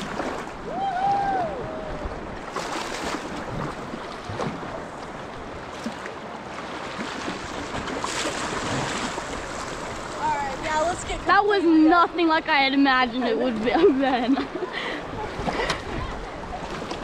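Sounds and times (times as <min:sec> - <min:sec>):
river water rushing: 0:00.0 - 0:13.5
water splashes: 0:00.0 - 0:17.0.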